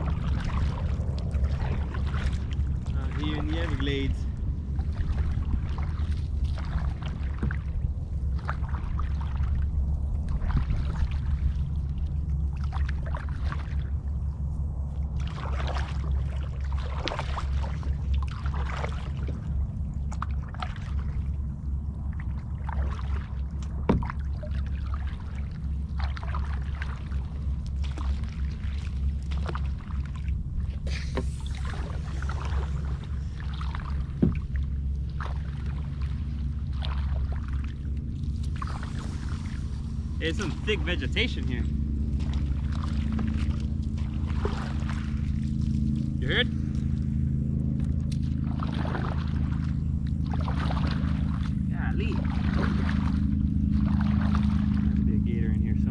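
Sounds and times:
paddle blades splashing: 0.0s - 55.9s
steady low rumble: 0.0s - 55.9s
hull brushing through vegetation: 38.3s - 41.5s.

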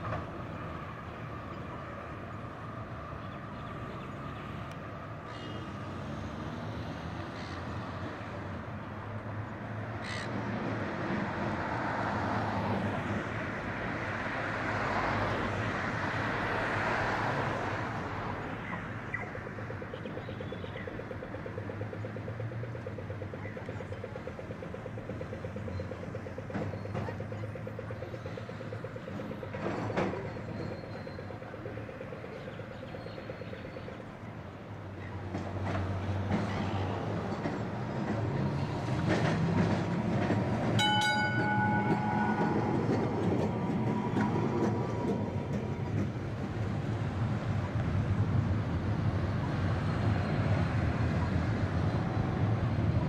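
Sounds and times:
rail vehicle running on track: 0.0s - 53.0s
short multi-pitch ringing tone: 40.8s - 43.5s.

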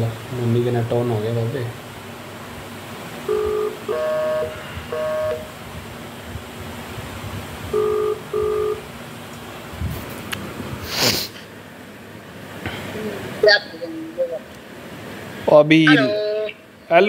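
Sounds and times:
chime-like tones: 3.3s - 5.4s
short electronic beeps: 3.3s - 5.5s, 7.7s - 8.8s.

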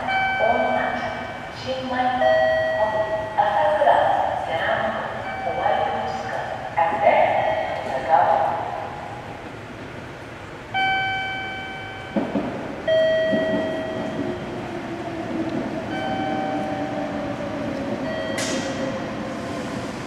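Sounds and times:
train rumbling: 0.0s - 20.0s
ringing tones: 10.8s - 12.3s.

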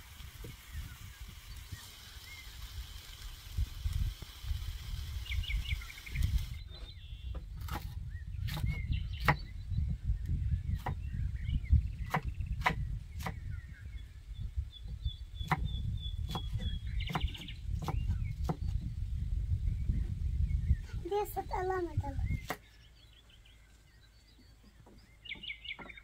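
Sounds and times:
birds chirping: 0.0s - 26.0s
knife chopping on wooden board: 7.6s - 9.4s, 12.1s - 13.4s.

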